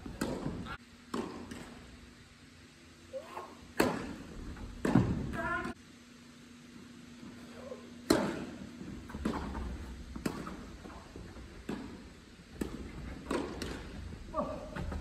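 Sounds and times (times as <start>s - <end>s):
tennis ball bouncing on court: 0.0s - 1.9s, 3.8s - 5.4s, 8.0s - 14.1s
tennis ball struck by rackets: 0.1s - 1.9s, 3.8s - 5.4s, 8.0s - 10.7s, 11.4s - 14.0s.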